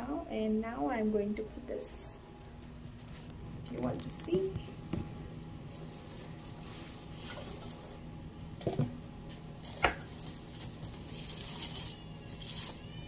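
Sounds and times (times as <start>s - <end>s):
plastic film and cardboard rustling: 5.7s - 8.1s, 9.3s - 13.0s.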